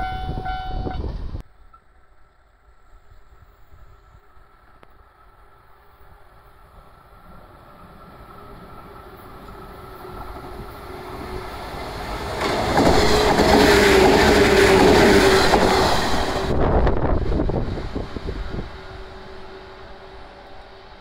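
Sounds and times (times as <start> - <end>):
steady train hum: 0.0 - 21.0
train wheels on rails: 0.0 - 21.0
train clickety-clack: 8.8 - 18.0.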